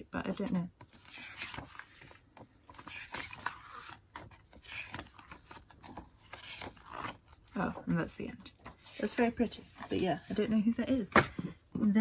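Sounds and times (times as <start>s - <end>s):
calendar pages rustling: 0.3s - 11.1s.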